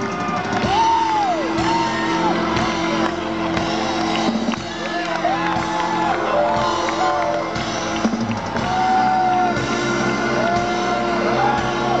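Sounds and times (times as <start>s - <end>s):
live rock band: 0.0s - 12.0s
long bending high notes: 6.2s - 8.1s.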